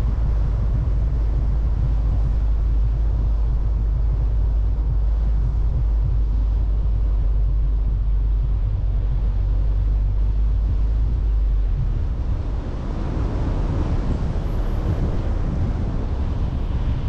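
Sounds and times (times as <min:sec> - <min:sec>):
car driving on road: 0:00.0 - 0:17.0.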